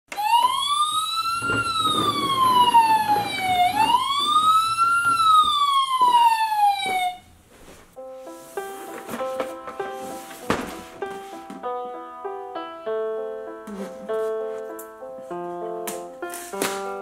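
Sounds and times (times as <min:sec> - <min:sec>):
ambulance siren wailing: 0:00.1 - 0:07.3.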